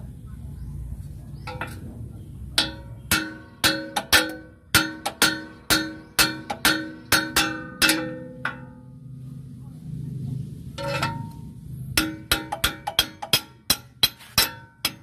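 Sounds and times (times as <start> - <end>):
hammer striking steel bar: 2.6 - 9.0, 12.0 - 15.0.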